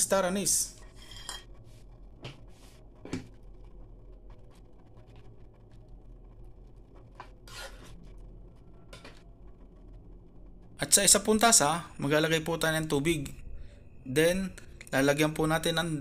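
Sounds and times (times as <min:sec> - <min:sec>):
faint steady low hum: 0:00.0 - 0:16.0
utensil scraping a pot: 0:00.8 - 0:01.9, 0:07.4 - 0:08.2.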